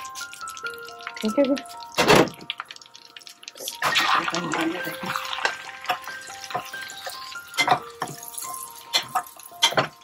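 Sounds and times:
soft background music: 0:00.0 - 0:10.0.

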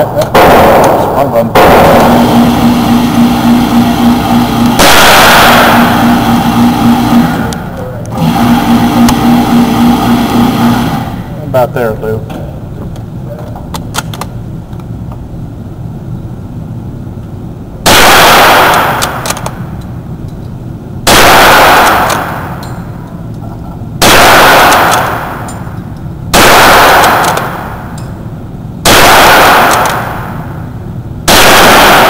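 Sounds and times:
rifle shots echoing: 0:00.0 - 0:07.8, 0:17.8 - 0:19.7, 0:21.0 - 0:22.6, 0:24.0 - 0:25.7, 0:26.3 - 0:28.0, 0:28.8 - 0:30.7, 0:31.3 - 0:32.0.

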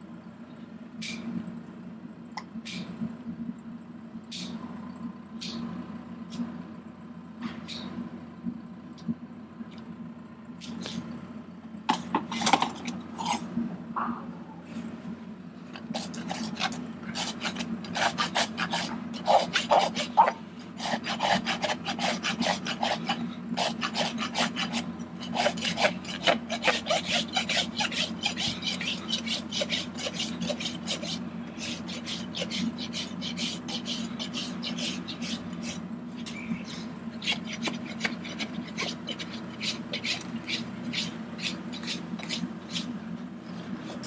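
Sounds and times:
rasp filing hoof: 0:15.9 - 0:36.4, 0:37.1 - 0:44.0.

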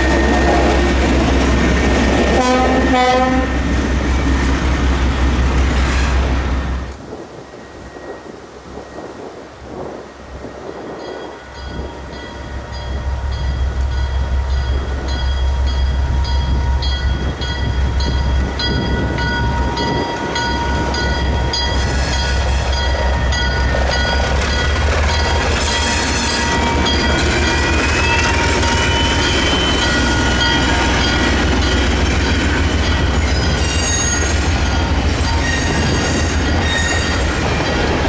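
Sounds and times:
diesel locomotive engine: 0:00.0 - 0:38.0
high ringing: 0:10.9 - 0:38.0.

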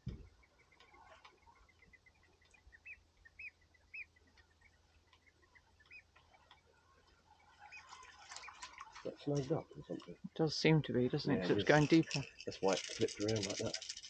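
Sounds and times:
chirping bird calls: 0:00.0 - 0:10.4.

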